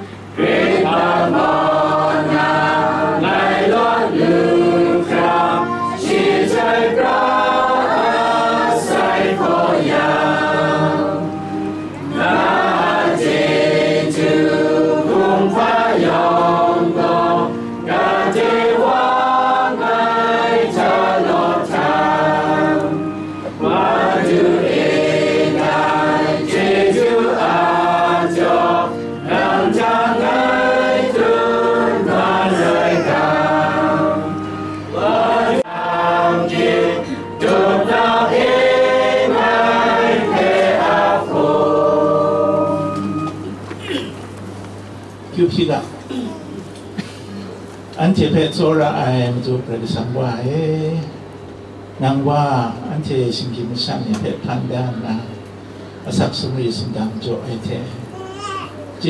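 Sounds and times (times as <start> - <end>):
choir singing a hymn: 0.0 - 43.9.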